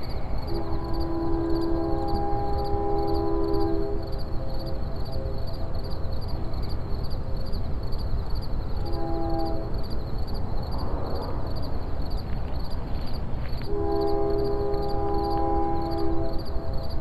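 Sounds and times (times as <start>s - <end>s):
crickets chirping: 0.0s - 17.0s
train horn chord: 0.4s - 5.8s, 8.8s - 9.8s, 13.7s - 17.0s.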